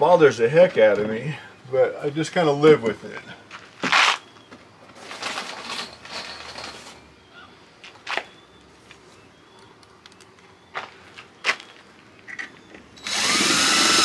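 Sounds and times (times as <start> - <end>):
equipment rustling: 3.7 - 7.0.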